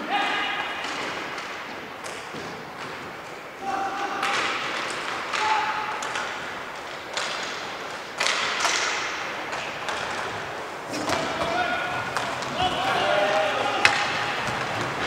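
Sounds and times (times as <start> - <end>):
sticks and puck knocking on boards: 0.6 - 3.4, 4.0 - 15.0
players shouting: 3.6 - 6.6, 10.2 - 15.0.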